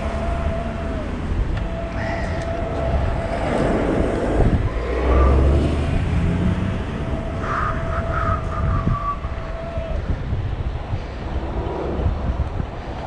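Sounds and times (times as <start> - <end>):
thin steady whine: 0.0 - 9.8
road noise and traffic: 0.0 - 13.0
wind rumbling on microphone: 0.0 - 13.0.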